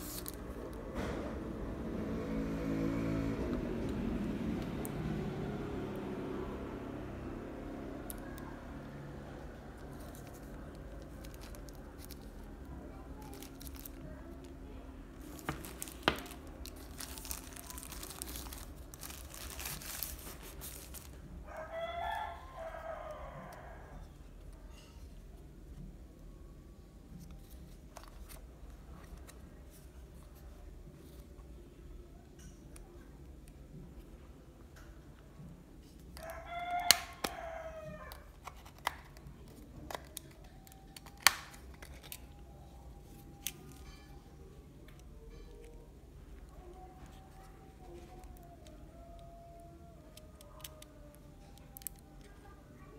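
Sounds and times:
plastic wrapping crinkling: 0.0 - 0.6, 9.9 - 21.4, 38.3 - 44.2, 50.0 - 52.6
plastic phone cover snapping: 39.8 - 42.2.

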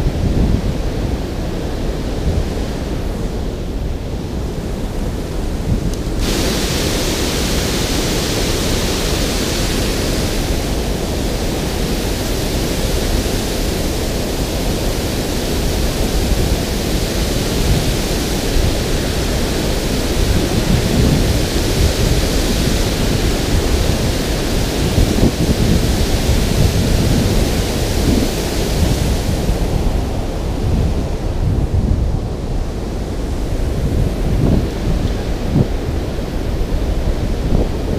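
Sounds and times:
water pouring over spillway: 5.9 - 29.8.

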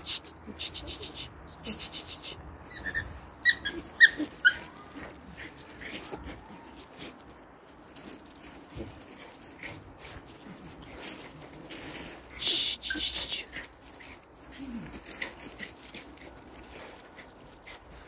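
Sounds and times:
puppy crying: 2.7 - 6.8.

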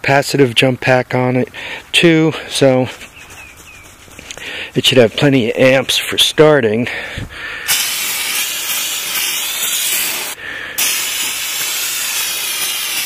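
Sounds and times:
aerosol can hissing spray: 7.7 - 13.0.

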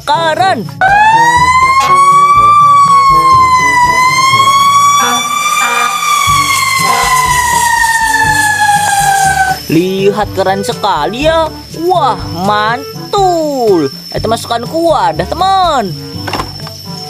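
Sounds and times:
fire truck siren wailing: 0.8 - 9.7.

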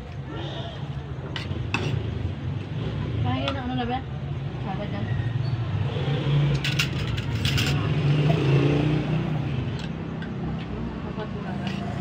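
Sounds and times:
cutlery clinking on plates: 6.6 - 7.9.

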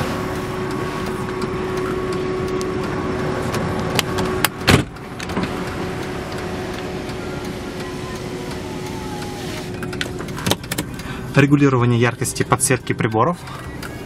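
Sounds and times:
steady outside hum: 0.0 - 14.0
car door thud: 4.5 - 5.5.

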